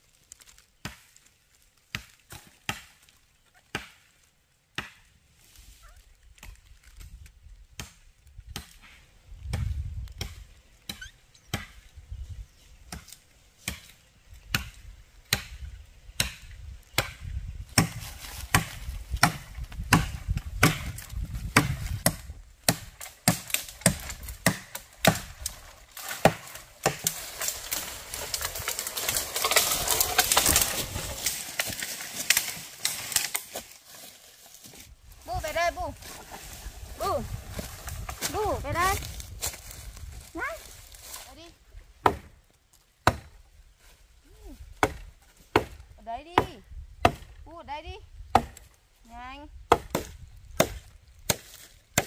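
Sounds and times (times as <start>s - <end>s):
footsteps through dry leaves: 0.0s - 2.7s, 17.8s - 19.1s, 25.3s - 41.6s
machete chopping wood: 1.9s - 3.0s, 3.7s - 4.1s, 4.8s - 5.1s, 7.8s - 11.8s, 12.9s - 15.6s, 16.2s - 33.7s, 42.0s - 42.4s, 43.0s - 43.4s, 44.8s - 47.4s, 48.3s - 48.8s, 49.7s - 52.0s.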